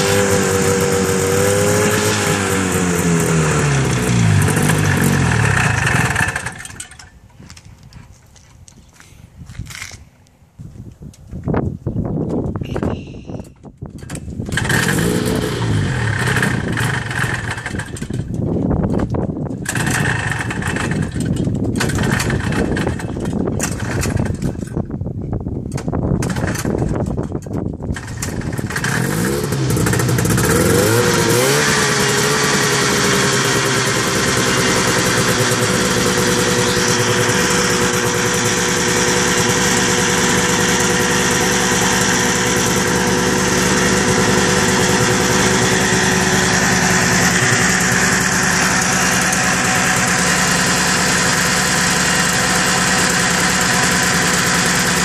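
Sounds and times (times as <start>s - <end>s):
snowmobile engine running rough: 0.0s - 6.8s, 14.5s - 18.3s, 19.6s - 24.7s, 27.9s - 55.0s.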